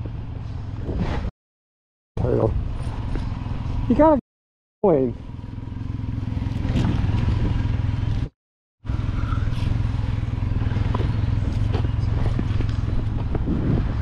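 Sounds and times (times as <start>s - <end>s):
motorcycle engine idling: 4.9s - 8.3s, 8.9s - 13.4s.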